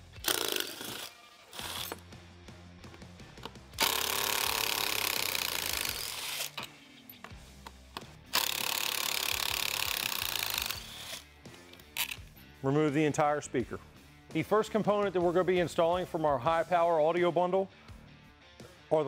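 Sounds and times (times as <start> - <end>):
cordless drill running: 0.2 - 2.0, 3.8 - 6.6, 8.3 - 11.2.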